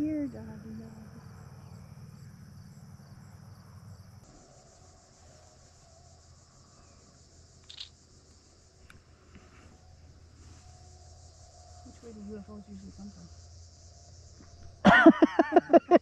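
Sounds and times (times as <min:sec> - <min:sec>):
crickets chirping: 0:00.0 - 0:16.0
sharp click: 0:07.6 - 0:07.9.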